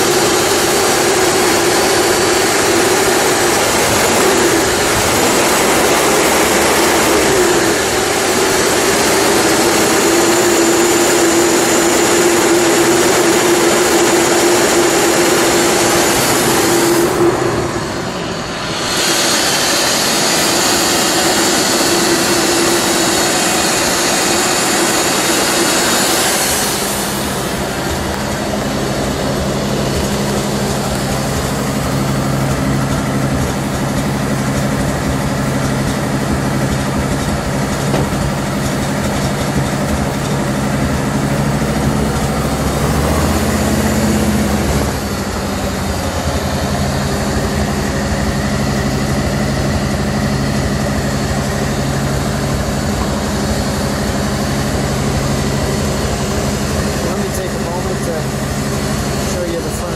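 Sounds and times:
car engine idling: 0:00.0 - 0:59.9
supercharger and belt hiss: 0:00.0 - 0:59.9.

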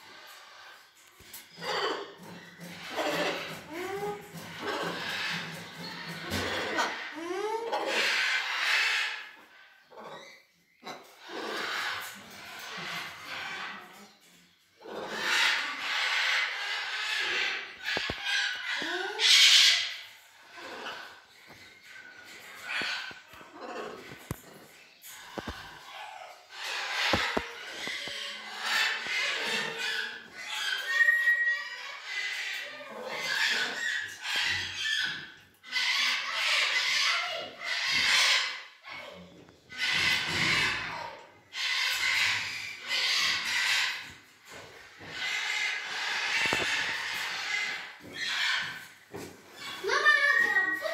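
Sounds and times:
macaws hissing: 0:26.6 - 0:33.8, 0:41.7 - 0:49.2
macaw harsh raspy calls: 0:41.6 - 0:48.8, 0:49.6 - 0:50.9.

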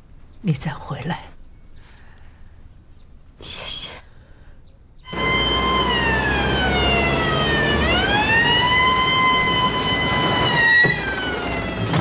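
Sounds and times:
siren wailing: 0:05.1 - 0:12.0.

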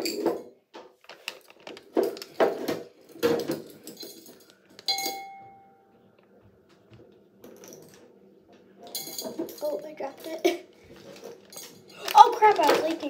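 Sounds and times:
plastic bag crinkling: 0:01.0 - 0:04.9, 0:10.2 - 0:13.0.

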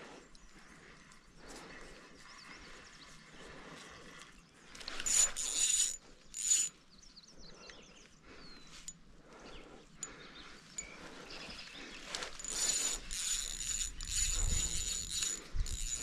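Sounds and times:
fishing reel drag buzzing: 0:04.8 - 0:06.7, 0:12.2 - 0:16.0.

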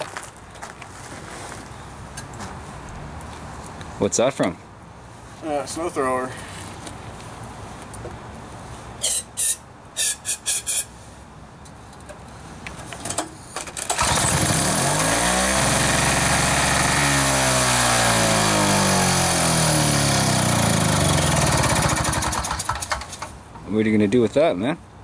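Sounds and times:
short hissing bursts: 0:09.0 - 0:11.2
snow thrower engine running: 0:13.8 - 0:23.2.

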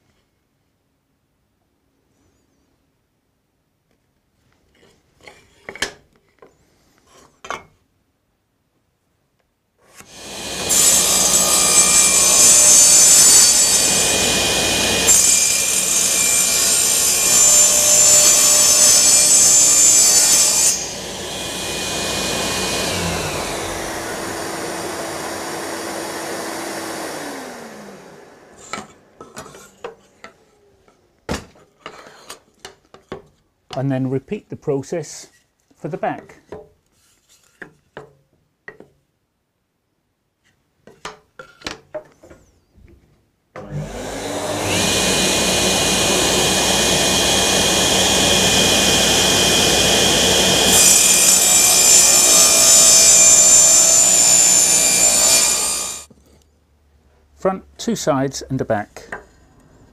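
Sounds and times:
electric saw cutting wood: 0:10.0 - 0:29.3, 0:43.6 - 0:56.1.

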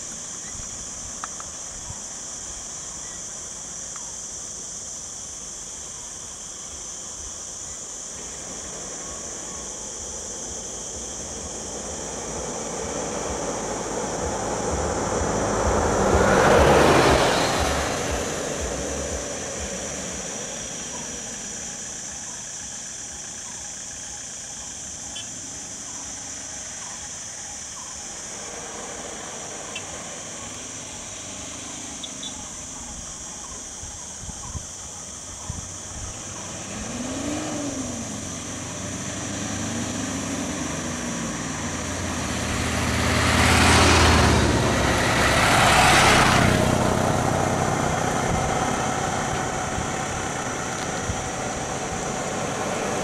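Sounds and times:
steady high-pitched hiss: 0:00.0 - 0:53.0
vehicle passing by: 0:08.4 - 0:21.8, 0:28.0 - 0:32.3, 0:36.2 - 0:53.0.

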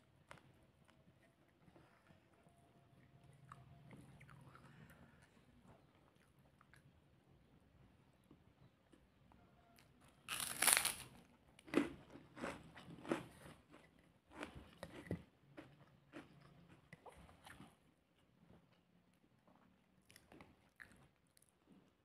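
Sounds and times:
person crunching cracker: 0:10.2 - 0:16.4.

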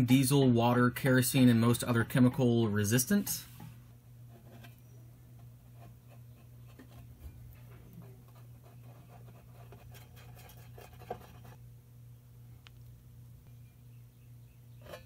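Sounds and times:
steady low hum: 0:00.0 - 0:15.0
stick scratching on metal: 0:04.3 - 0:04.8, 0:05.4 - 0:11.6.

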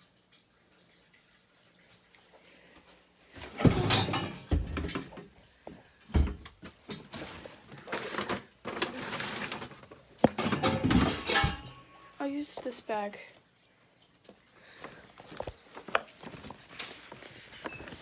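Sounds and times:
bumps and knocks: 0:03.5 - 0:05.3
loud rustling of bags and clothes: 0:15.0 - 0:18.0.

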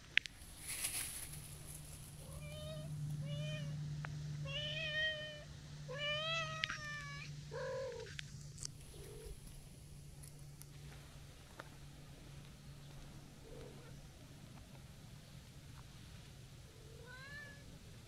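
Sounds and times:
cat meowing: 0:02.2 - 0:03.8, 0:16.9 - 0:17.7.

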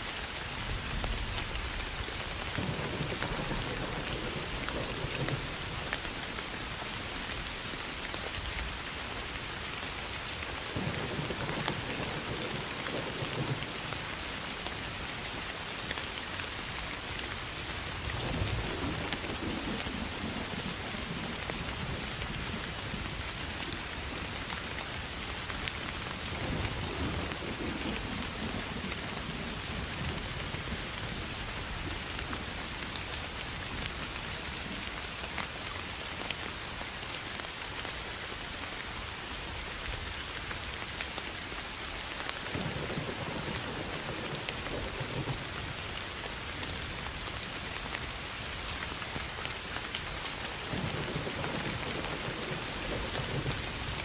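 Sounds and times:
steady rain falling: 0:00.0 - 0:54.0
thunder rumbles: 0:00.6 - 0:07.8, 0:10.0 - 0:32.6, 0:42.5 - 0:54.0.

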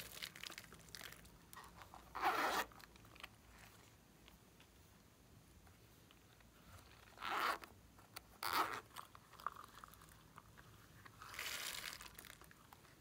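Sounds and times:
zipper on plastic pencil case: 0:02.1 - 0:02.7, 0:07.0 - 0:07.7, 0:08.4 - 0:09.6, 0:11.2 - 0:12.4.

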